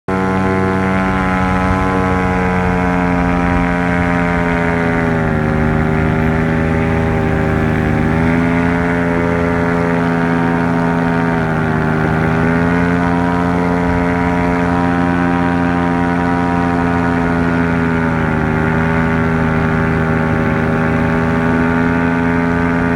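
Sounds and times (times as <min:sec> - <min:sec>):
drone propellers humming: 0:00.1 - 0:22.9.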